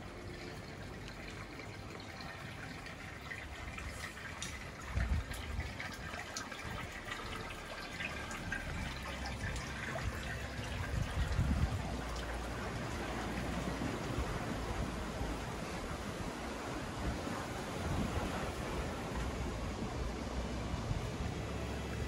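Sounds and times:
water trickling into pool gutter: 0.0s - 22.0s
wind rumble on microphone: 3.6s - 7.2s, 8.1s - 22.0s.

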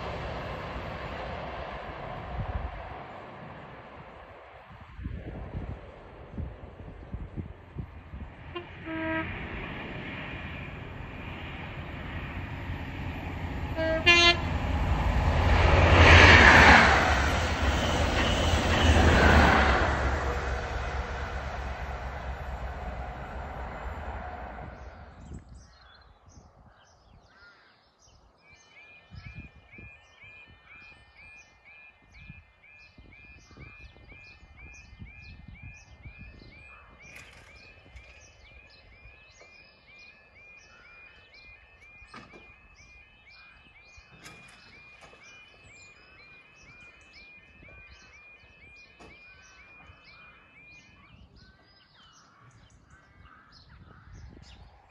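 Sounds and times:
train passing on rails: 0.0s - 25.9s, 28.4s - 54.9s
level crossing warbling alarm: 40.1s - 51.4s.

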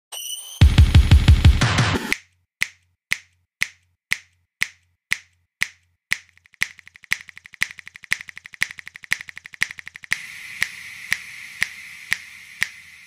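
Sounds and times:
finger-snap music beat: 0.7s - 13.0s
steady hiss: 10.1s - 13.0s.

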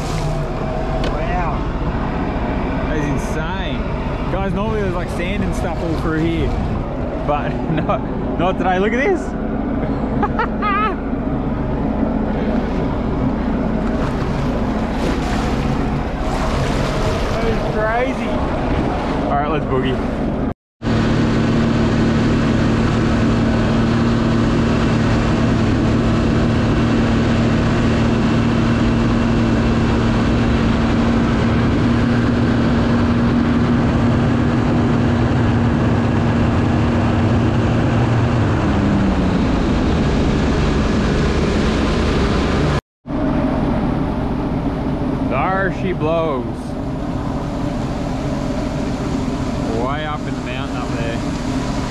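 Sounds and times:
water rushing: 0.0s - 9.1s, 11.0s - 20.5s, 45.0s - 51.9s
wind noise: 0.0s - 45.6s
jet ski engine running: 0.0s - 51.9s.

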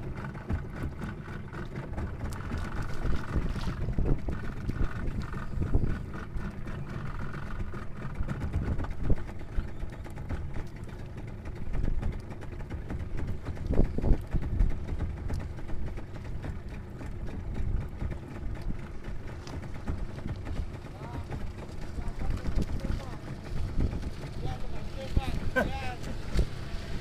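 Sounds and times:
low rumble of wind: 0.0s - 27.0s
water around a boat: 0.0s - 27.0s
knock on boat: 0.4s - 0.8s.

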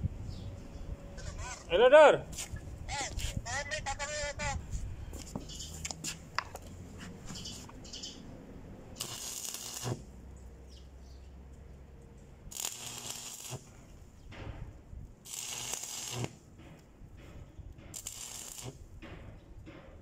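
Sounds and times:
arc welder crackling: 9.0s - 10.2s, 12.5s - 14.0s, 15.2s - 16.9s, 17.9s - 19.0s.

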